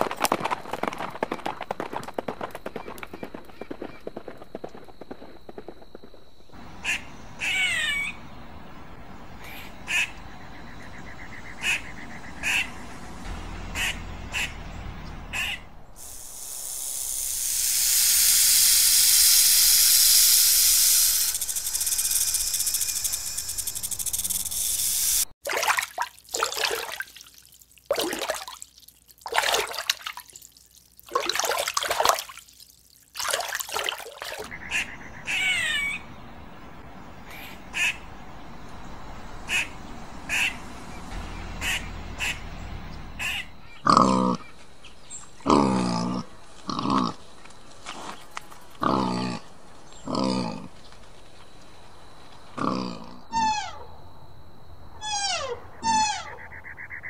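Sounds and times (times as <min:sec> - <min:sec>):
fish splashing: 0:25.4 - 0:34.5.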